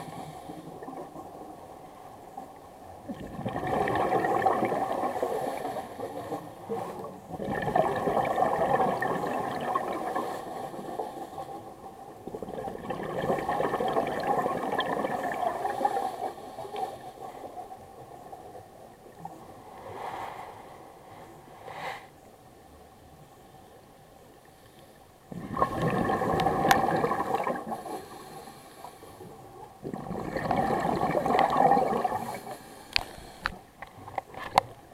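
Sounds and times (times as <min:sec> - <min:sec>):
diver's bubbles gurgling: 0:03.0 - 0:05.7, 0:06.7 - 0:10.8, 0:12.2 - 0:16.1, 0:25.3 - 0:27.9, 0:29.8 - 0:32.5
regulator breathing underwater: 0:10.0 - 0:11.8, 0:19.8 - 0:22.2, 0:24.6 - 0:33.7.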